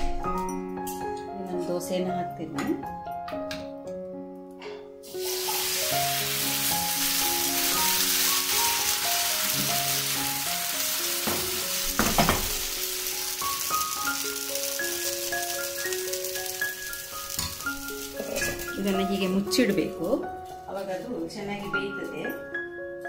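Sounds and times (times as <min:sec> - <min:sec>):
background music with plucked notes: 0:00.0 - 0:23.0
batter sizzling on hot pan: 0:05.0 - 0:21.0.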